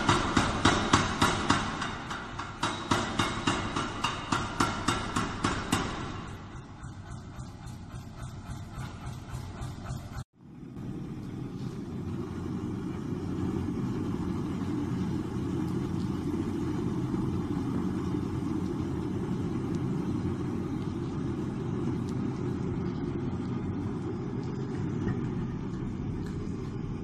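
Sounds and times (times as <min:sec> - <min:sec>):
forge furnace roaring: 0:00.0 - 0:27.0.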